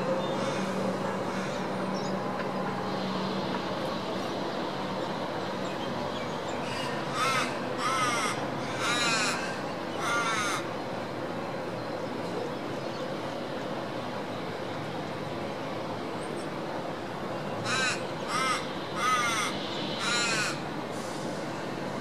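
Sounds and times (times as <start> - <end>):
railway station hum: 0.0 - 22.0
raven cawing: 0.4 - 1.6, 6.6 - 10.7, 17.6 - 20.6.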